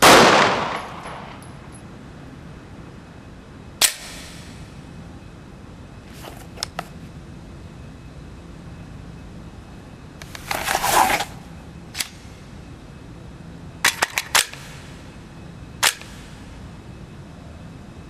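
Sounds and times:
pistol sharp clicks: 15.8s - 16.2s.

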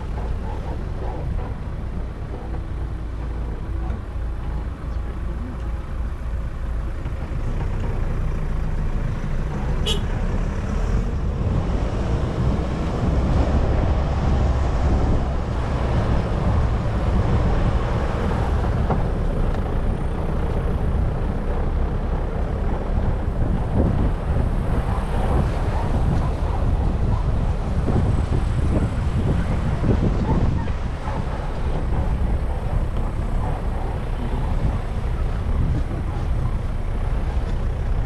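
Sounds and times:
wind buffeting microphone: 10.9s - 38.0s.

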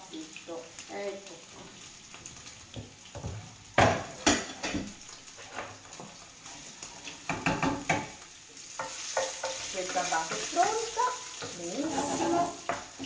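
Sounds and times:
food sizzling softly: 0.0s - 13.0s
sharp knocks on frying pan: 2.8s - 5.0s, 7.3s - 8.2s.

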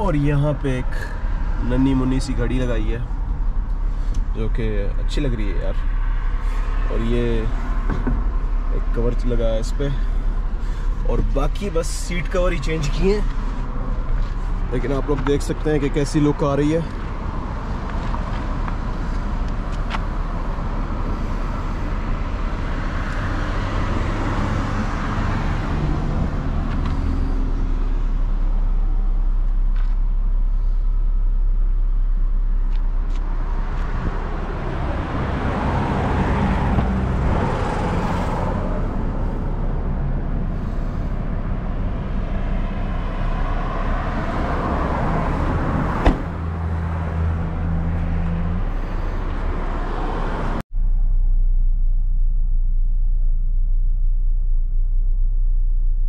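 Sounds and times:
vehicles driving past: 0.0s - 51.9s
steady low hum: 25.9s - 35.5s, 38.5s - 43.6s, 50.6s - 56.0s.

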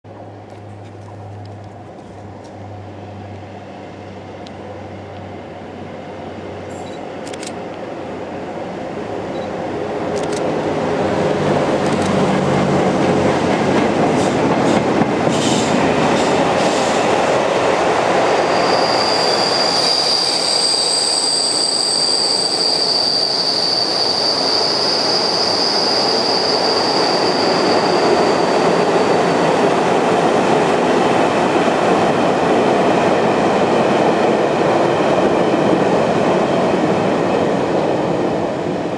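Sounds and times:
diesel locomotive engine hum: 0.1s - 38.9s
train wheels on rails: 6.6s - 38.9s
high wheel squeal: 18.3s - 29.6s.

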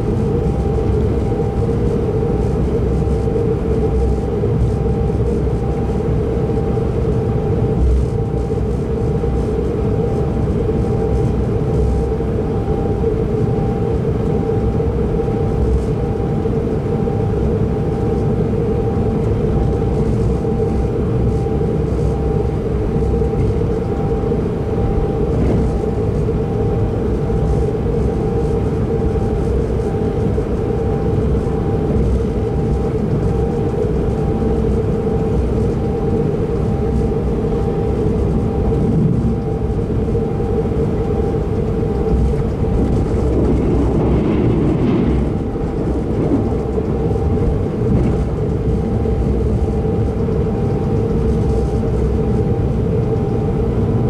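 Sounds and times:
constant hum: 0.0s - 54.0s
train wheels rumbling on rails: 25.0s - 26.2s, 40.9s - 50.2s.

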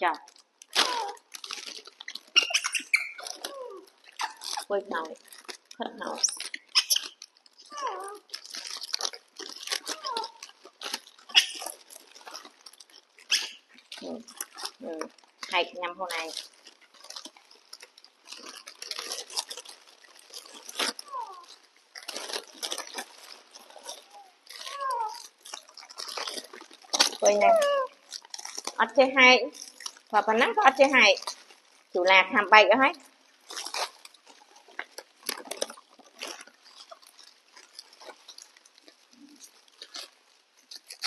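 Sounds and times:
plastic packets crinkling: 0.0s - 41.0s
crisp snacks crunched: 0.1s - 41.0s
falling squeak: 2.4s - 4.4s.

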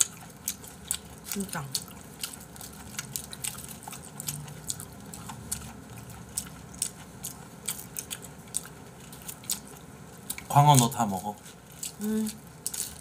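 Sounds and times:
wet chewing mouth sounds: 0.0s - 10.5s.

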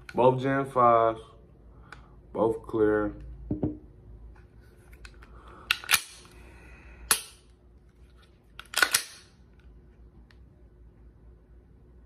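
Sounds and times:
pistol action clicking: 8.6s - 9.3s.

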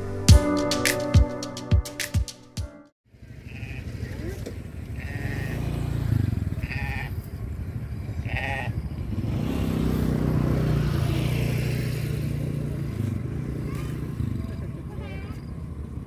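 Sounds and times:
livestock bleating: 3.4s - 4.0s, 5.0s - 5.6s, 6.6s - 7.2s, 8.2s - 8.8s.

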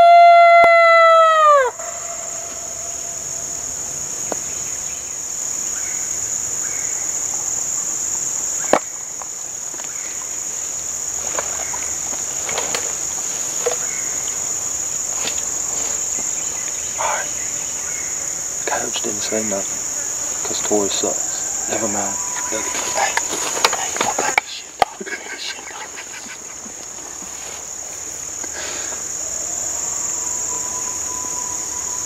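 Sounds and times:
coyote howler call: 0.0s - 3.9s, 19.2s - 23.3s, 29.7s - 32.0s
insects droning: 0.0s - 32.0s.

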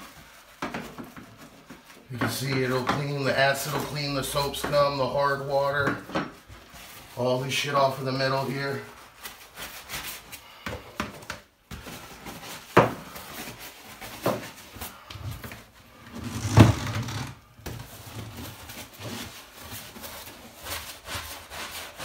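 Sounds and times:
brush scrubbing wet tile: 0.0s - 5.8s, 18.1s - 22.0s.

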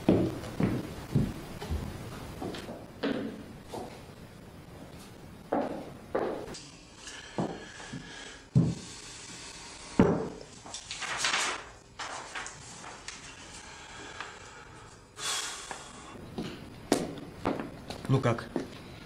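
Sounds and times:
paper rustling: 10.6s - 13.6s.

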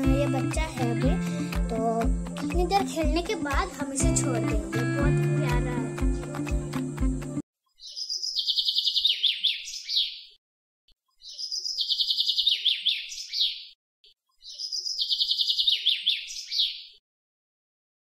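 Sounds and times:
songbird twittering trill: 7.8s - 10.2s, 11.2s - 13.7s, 14.4s - 17.0s.

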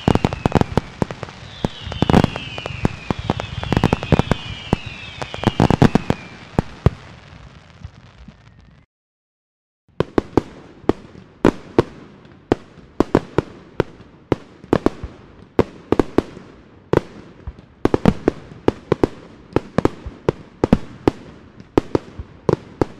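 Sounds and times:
fireworks bangs: 0.0s - 8.9s, 9.9s - 22.9s.

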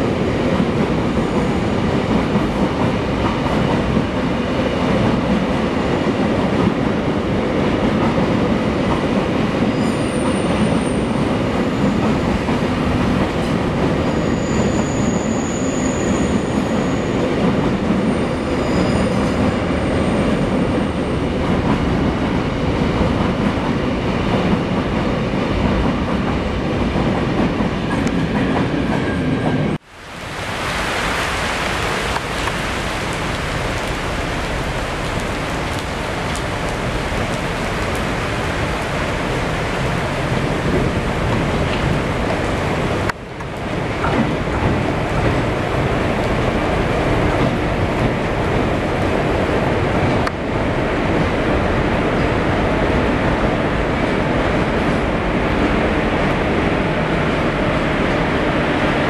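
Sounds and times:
freight train rumbling past: 0.0s - 59.0s
high-pitched wheel squeals: 9.7s - 11.2s, 14.0s - 17.4s, 18.1s - 20.2s
heavy rain hissing: 29.8s - 43.1s.

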